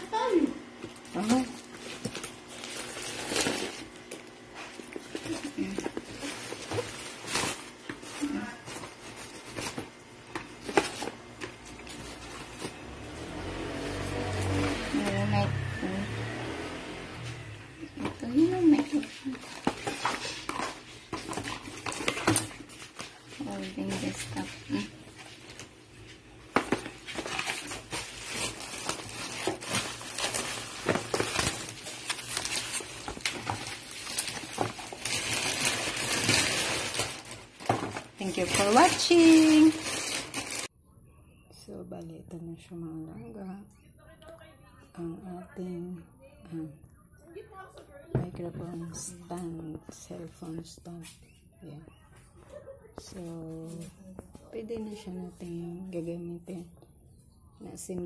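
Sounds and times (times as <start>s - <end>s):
plastic and cardboard rustling: 0.1s - 15.6s, 17.8s - 40.7s.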